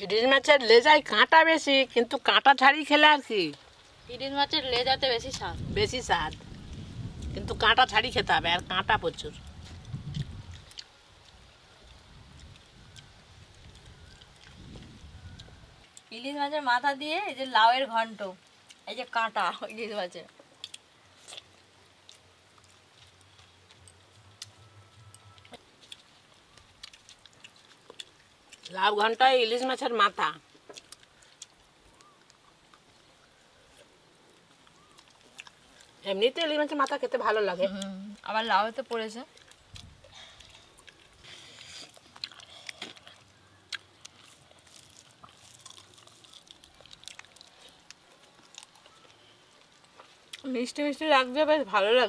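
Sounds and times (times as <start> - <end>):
chewing and eating sounds: 9.1 - 16.1, 18.4 - 18.9, 19.6 - 51.0
fingers rustling through food: 20.5 - 29.9, 37.7 - 50.9.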